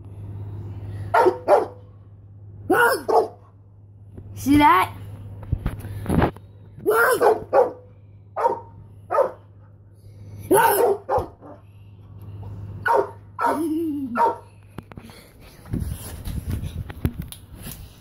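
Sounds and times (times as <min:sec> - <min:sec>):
dog barking: 0:01.1 - 0:01.8, 0:02.7 - 0:03.5, 0:07.0 - 0:09.5, 0:10.5 - 0:11.6, 0:12.8 - 0:13.6, 0:14.2 - 0:14.4.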